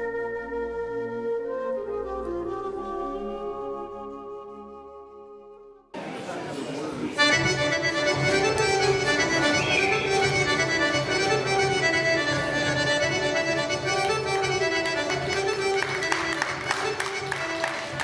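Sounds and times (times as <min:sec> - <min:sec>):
accordion folk dance music: 0:07.1 - 0:18.0.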